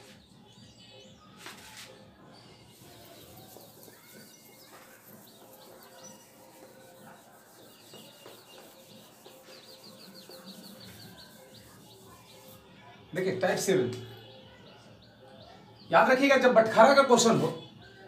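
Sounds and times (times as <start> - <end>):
birds chirping: 0.0 - 18.0
rapid high chirps: 2.7 - 12.6.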